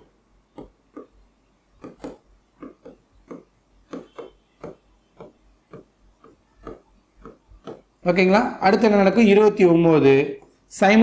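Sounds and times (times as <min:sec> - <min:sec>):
pen scratching on whiteboard screen: 0:00.0 - 0:08.0.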